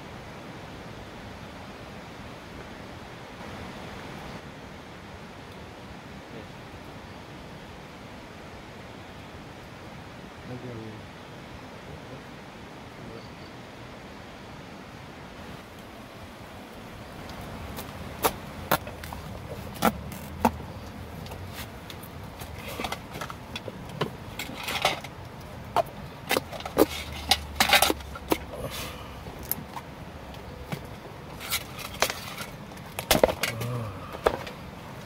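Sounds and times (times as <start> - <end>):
scraping and handling: 17.8 - 29.9, 30.5 - 34.7.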